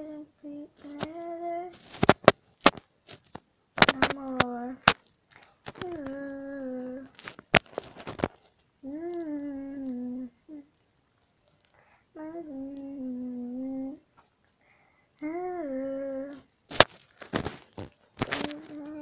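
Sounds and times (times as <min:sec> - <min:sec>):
girl humming a tune: 0:00.0 - 0:01.8, 0:05.8 - 0:07.2, 0:08.8 - 0:10.7, 0:12.2 - 0:14.0, 0:15.2 - 0:16.5, 0:18.4 - 0:19.0.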